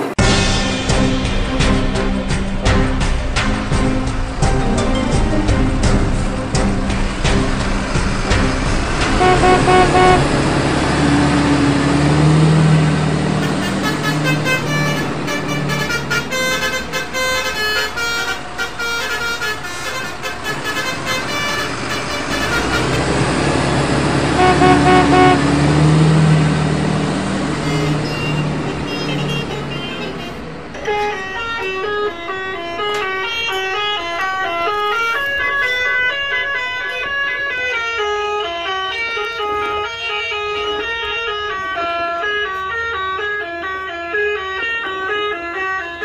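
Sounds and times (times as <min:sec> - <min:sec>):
train horn toots: 0:07.2 - 0:26.6, 0:27.5 - 0:38.8.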